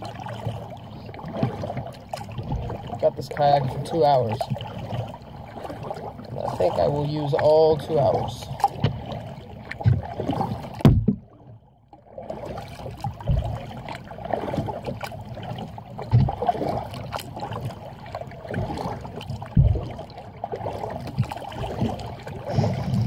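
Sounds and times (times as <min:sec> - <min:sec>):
paddle strokes splashing water: 0:00.0 - 0:23.0
water dripping from paddle: 0:00.0 - 0:23.0
low thumps: 0:10.8 - 0:11.3, 0:13.2 - 0:13.7, 0:19.5 - 0:20.0.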